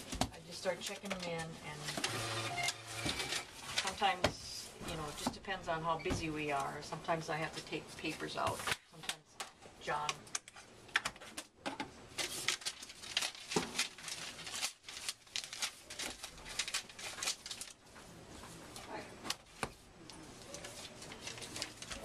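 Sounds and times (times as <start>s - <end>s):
paper rustling: 12.1s - 22.0s.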